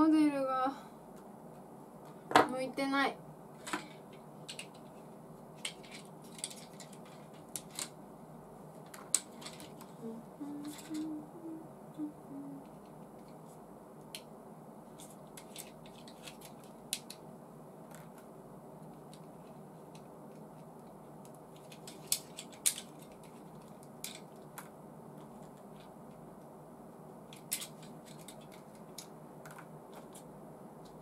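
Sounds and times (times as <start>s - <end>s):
low room hum: 0.0s - 31.0s
plastic parts clicking: 3.7s - 5.0s, 5.6s - 7.9s, 8.8s - 9.9s, 15.0s - 17.2s, 21.2s - 25.9s, 27.3s - 30.2s.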